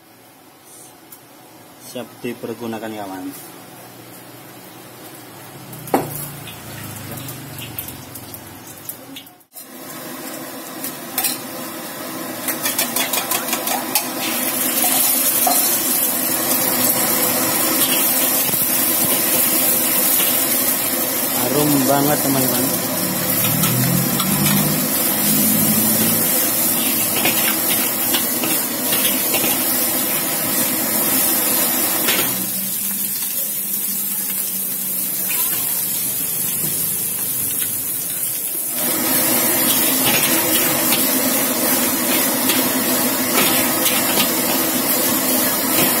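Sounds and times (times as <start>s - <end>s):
gas burner noise: 0.0s - 46.0s
egg sizzling in oil: 5.0s - 46.0s
metal spatula scraping wok: 23.2s - 29.9s.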